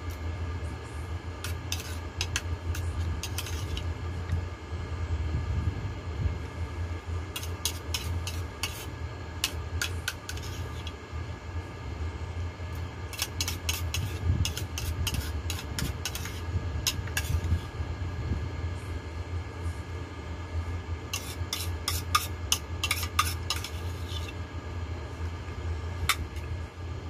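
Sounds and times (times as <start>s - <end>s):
steady low hum: 0.0s - 27.0s
spoon scraping a bowl: 1.4s - 3.9s, 7.4s - 10.9s, 13.1s - 17.7s, 21.1s - 24.4s.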